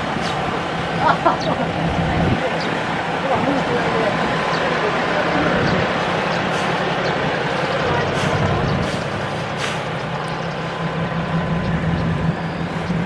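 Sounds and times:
road traffic engine hum: 0.0s - 13.0s
short hisses: 8.2s - 10.1s.

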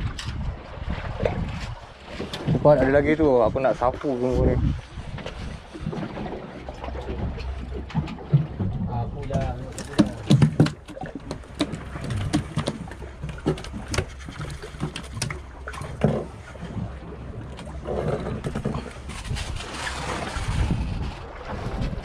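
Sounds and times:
wind on microphone: 0.0s - 6.4s, 17.8s - 22.0s
boat rumble: 0.0s - 22.0s.

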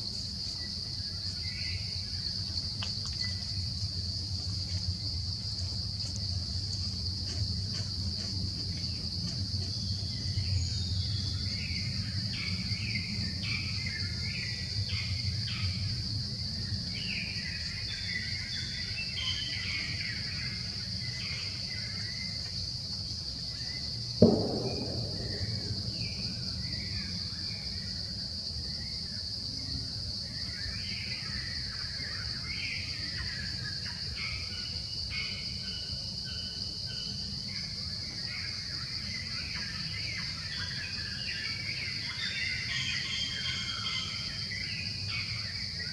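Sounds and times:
insects droning: 0.0s - 45.9s
sharp thump: 24.2s - 27.1s.

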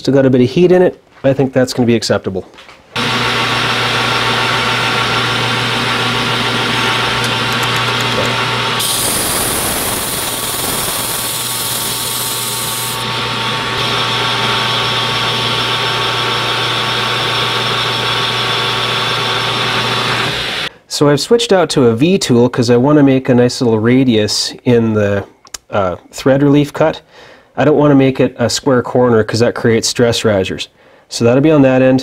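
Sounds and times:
metal lathe humming: 3.0s - 20.7s
abrasive cloth hissing on shaft: 8.8s - 13.0s.

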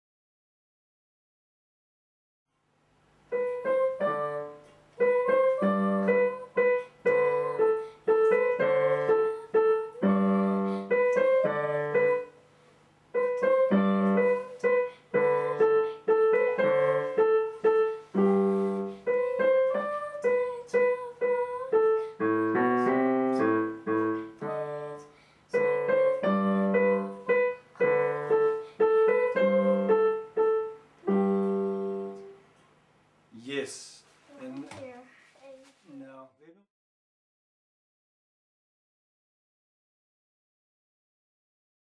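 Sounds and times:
child playing piano: 3.3s - 12.4s, 13.1s - 32.4s.

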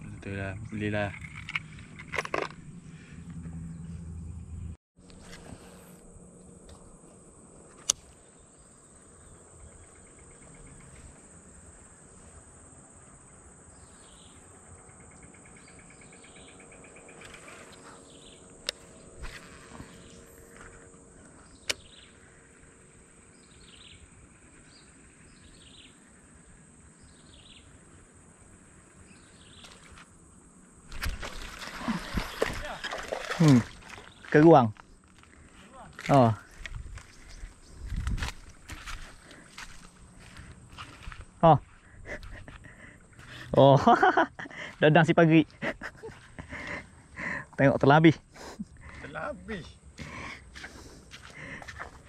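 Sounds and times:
high insect drone: 0.0s - 52.0s
bird chirping: 13.7s - 28.0s.

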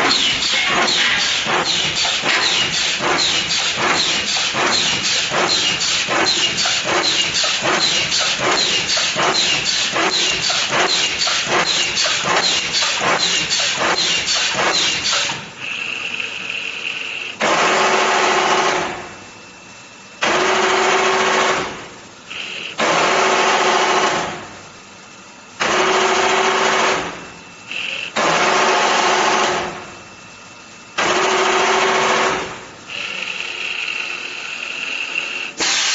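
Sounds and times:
compressed air hissing bursts: 35.6s - 35.9s.

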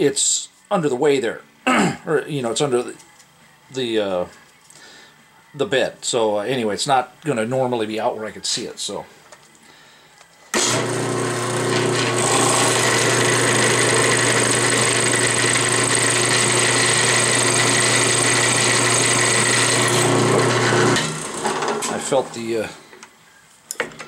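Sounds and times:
drill press motor humming: 10.5s - 22.0s
drill cutting through metal: 10.5s - 22.3s.

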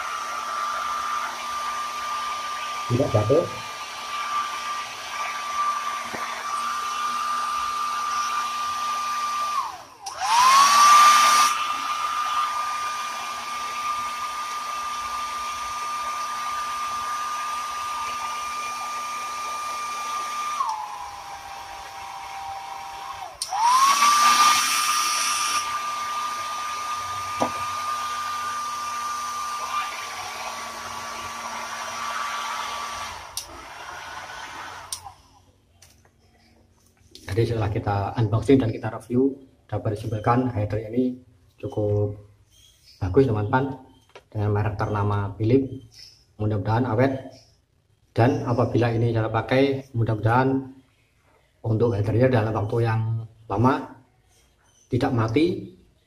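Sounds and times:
hair dryer running: 0.0s - 35.4s.

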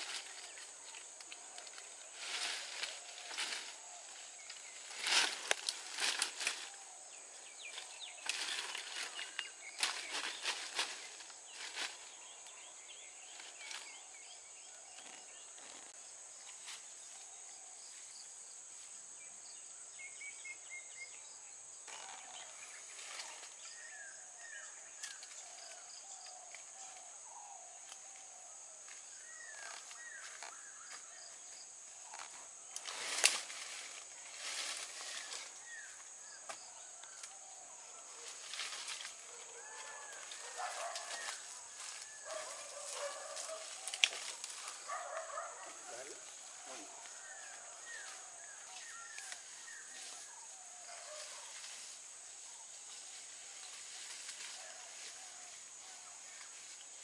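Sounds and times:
leafy rustling: 0.0s - 17.3s, 21.9s - 27.0s, 29.0s - 57.0s
insects droning: 0.0s - 57.0s
birds chirping: 34.0s - 51.6s.

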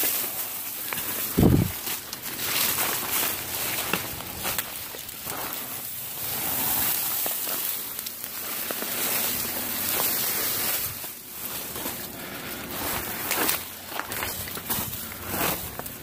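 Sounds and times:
dry leaves and branches rustling: 0.0s - 16.0s
footsteps in brush: 0.0s - 16.0s
twigs crackling and snapping: 0.0s - 16.0s.

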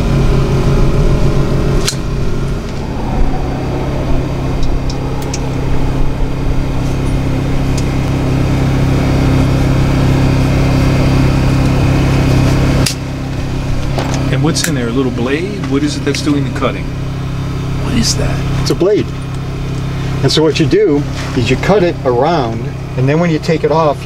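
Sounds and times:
machine hum with low drone: 1.2s - 11.8s.

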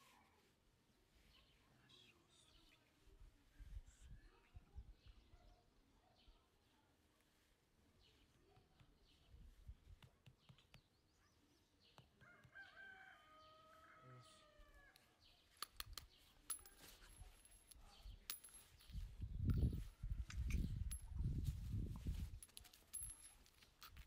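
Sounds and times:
faint metallic clicks and jingles: 15.5s - 24.0s.

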